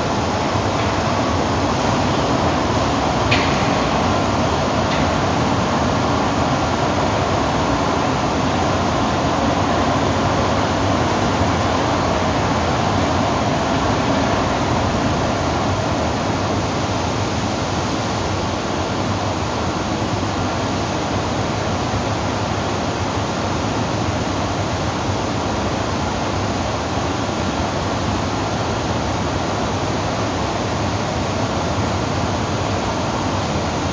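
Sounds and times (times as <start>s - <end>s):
overhead crane machinery hum: 0.0s - 33.9s.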